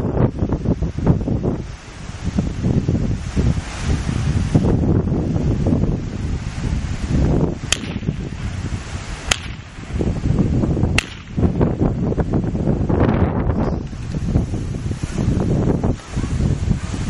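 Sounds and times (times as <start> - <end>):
wind buffeting microphone: 0.0 - 17.0
sharp snaps: 7.7 - 8.2, 9.2 - 9.8, 10.9 - 11.5.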